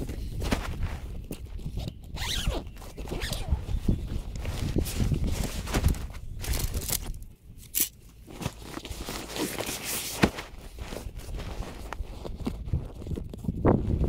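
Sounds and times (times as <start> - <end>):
heavy fabric rustling and dragging: 3.1 - 6.6, 8.3 - 13.1.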